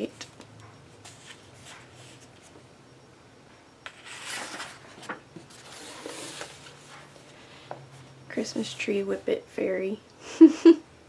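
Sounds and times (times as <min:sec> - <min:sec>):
paper pages rustling: 0:01.0 - 0:02.6, 0:03.9 - 0:07.4.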